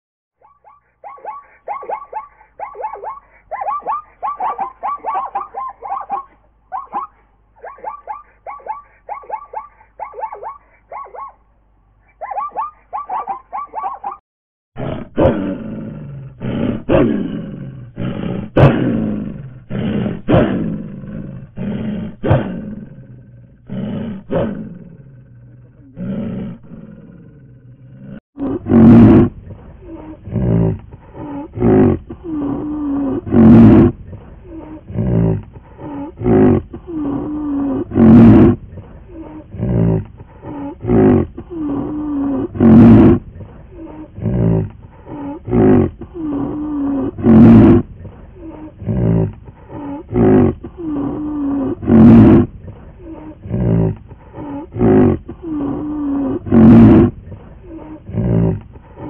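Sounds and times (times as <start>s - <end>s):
animal grunts: 14.8s - 59.0s
large animal roaring: 14.8s - 59.0s.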